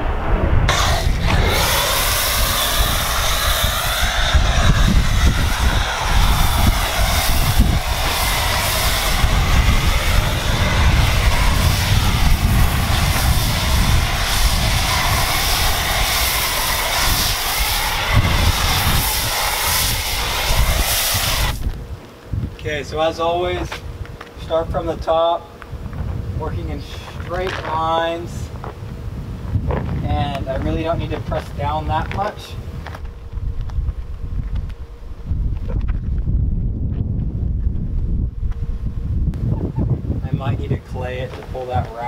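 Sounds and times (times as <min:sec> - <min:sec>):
low motor rumble: 0:00.0 - 0:24.9, 0:28.3 - 0:41.0
pressure washer spray hiss: 0:00.7 - 0:21.7
faint wavering whine: 0:30.4 - 0:42.0.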